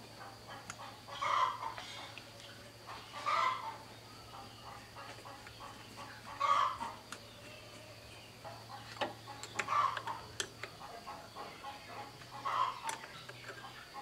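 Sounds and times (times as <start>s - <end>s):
hens clucking: 0.0s - 14.0s.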